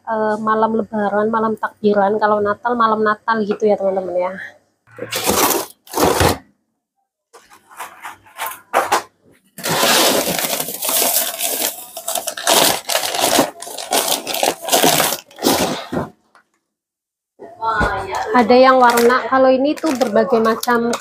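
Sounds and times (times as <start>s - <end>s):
plastic packaging crinkling: 5.0s - 6.4s, 7.4s - 16.1s, 18.7s - 21.0s.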